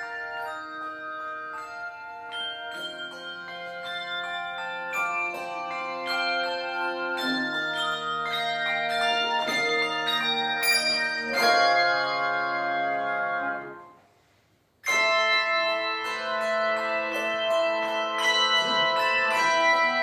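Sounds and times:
handbell choir ringing chords: 0.0 - 14.0, 14.8 - 20.0.

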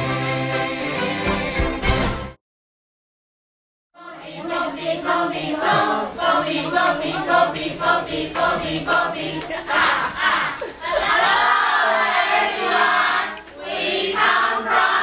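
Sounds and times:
young voices singing together: 4.0 - 15.0
hand claps: 5.6 - 6.6, 7.5 - 7.7, 8.3 - 9.6.

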